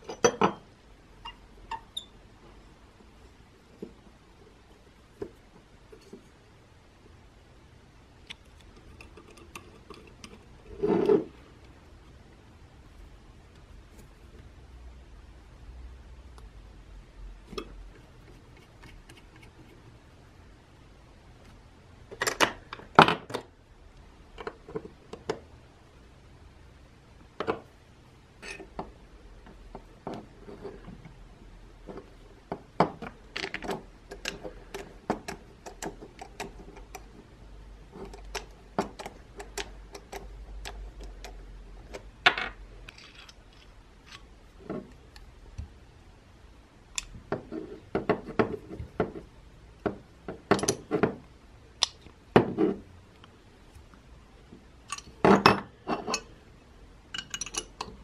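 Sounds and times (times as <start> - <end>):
metal tool parts clinking: 57.2 - 57.9.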